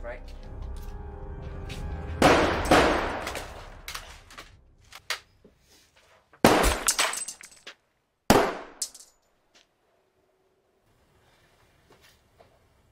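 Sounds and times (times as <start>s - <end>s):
handgun shots: 2.2s - 3.6s, 6.4s - 7.2s, 8.3s - 9.0s.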